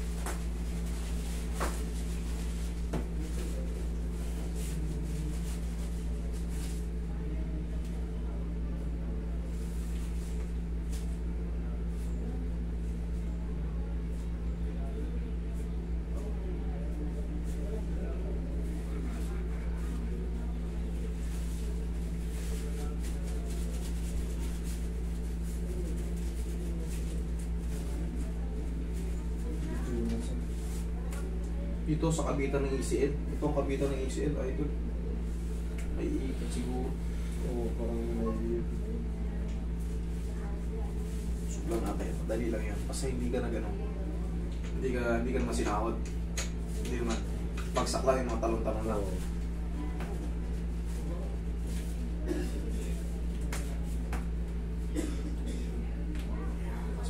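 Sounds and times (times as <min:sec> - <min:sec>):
cloth rubbing on skin: 0:00.0 - 0:07.2, 0:18.5 - 0:31.1
low room hum: 0:00.0 - 0:57.0.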